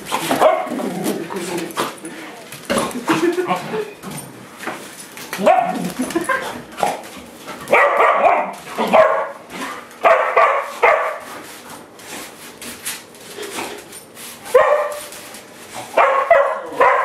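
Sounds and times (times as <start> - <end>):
dog barking: 0.3 - 0.7, 5.4 - 5.8, 7.7 - 9.4, 10.0 - 11.2, 14.5 - 15.0, 16.0 - 17.0
scratching and rustling: 8.5 - 16.1.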